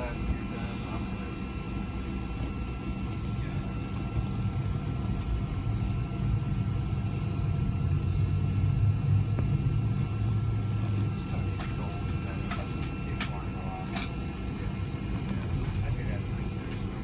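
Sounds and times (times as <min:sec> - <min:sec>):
faint steady whine: 0:00.0 - 0:17.0
low jet engine rumble: 0:00.0 - 0:17.0.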